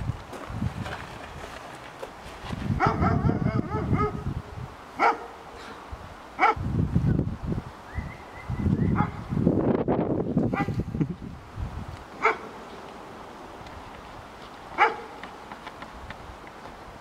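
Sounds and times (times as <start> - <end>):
dog yipping and barking: 2.8 - 4.2, 5.0 - 5.3, 6.4 - 6.6, 12.2 - 12.5, 14.8 - 15.1.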